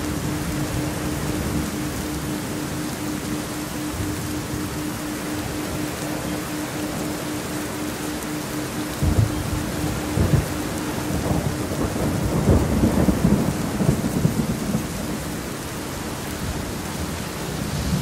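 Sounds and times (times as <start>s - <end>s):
steady rain: 0.0s - 18.0s
low rolling thunder: 8.9s - 15.7s.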